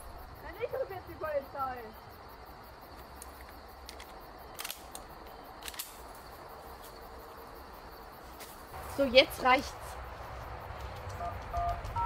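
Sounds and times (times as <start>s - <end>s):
footsteps crunching on dry leaves: 8.3s - 10.6s.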